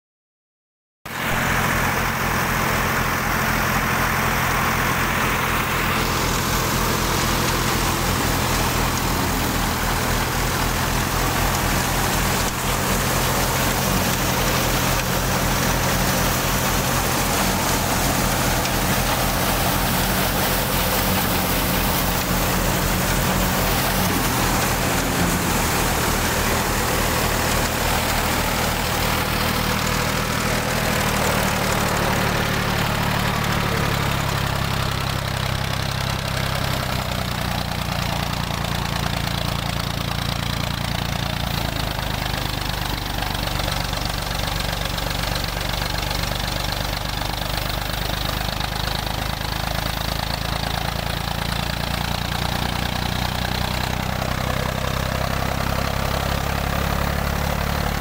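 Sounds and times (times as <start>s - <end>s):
tractor engine running: 1.1s - 58.0s
thresher drum whirring: 4.2s - 45.4s.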